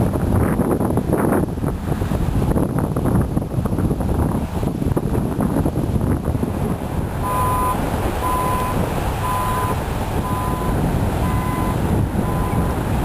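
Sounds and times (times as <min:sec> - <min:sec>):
wind buffeting microphone: 0:00.0 - 0:13.0
vehicle reversing alarm beeping: 0:07.2 - 0:12.8.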